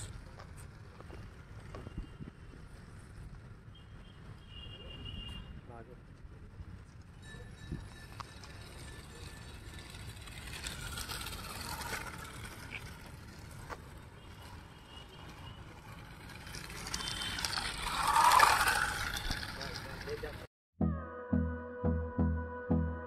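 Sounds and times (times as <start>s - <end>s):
wheels rolling on concrete: 6.0s - 20.5s
toy car electric motor and gears: 7.7s - 20.4s.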